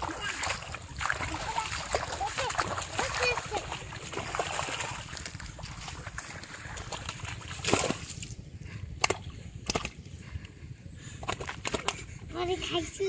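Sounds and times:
sharp splashes: 0:00.0 - 0:08.4
muddy water splashing and sloshing: 0:00.0 - 0:13.0.

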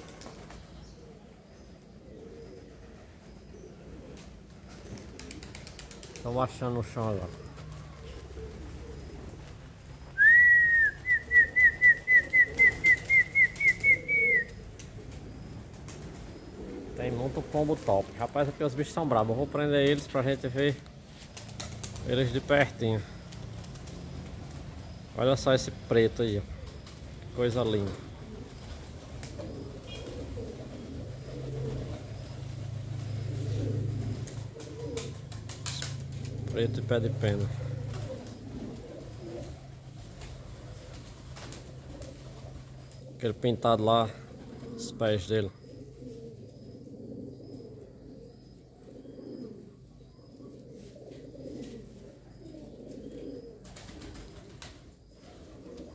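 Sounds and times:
wings flapping: 0:00.0 - 0:00.8, 0:03.9 - 0:18.7, 0:19.7 - 0:25.7, 0:26.3 - 0:43.2, 0:53.6 - 0:55.9
pigeons cooing: 0:00.0 - 0:55.9
person whistling a call: 0:10.2 - 0:14.5.

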